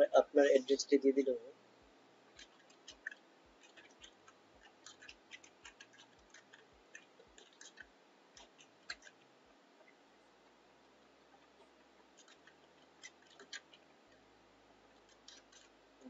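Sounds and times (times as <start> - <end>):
faint keyboard typing: 2.3 - 10.0, 11.0 - 14.3, 14.9 - 15.8.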